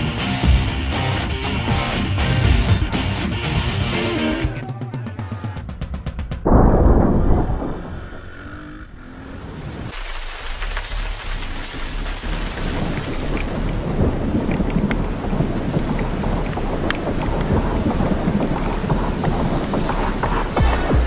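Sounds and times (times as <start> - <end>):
low rumble: 6.0 - 9.8
rain hiss: 9.6 - 21.0.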